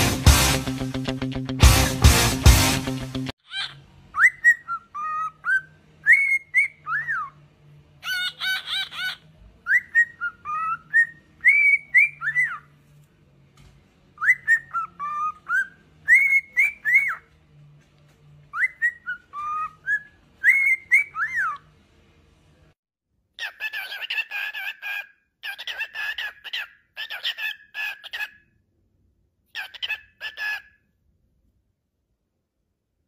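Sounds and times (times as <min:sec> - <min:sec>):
cockatiel whistling a tune: 0:04.2 - 0:07.4, 0:08.4 - 0:12.6, 0:14.2 - 0:17.2, 0:18.5 - 0:21.6.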